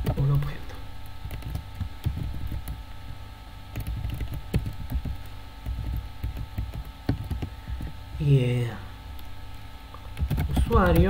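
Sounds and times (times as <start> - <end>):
faint steady hum: 0.0 - 11.0
keyboard key clicks: 3.7 - 7.9.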